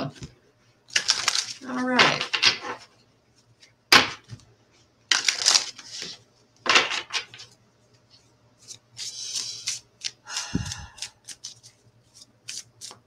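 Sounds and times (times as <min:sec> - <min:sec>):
cards being shuffled: 0:00.9 - 0:02.8, 0:05.1 - 0:06.2, 0:08.6 - 0:13.0.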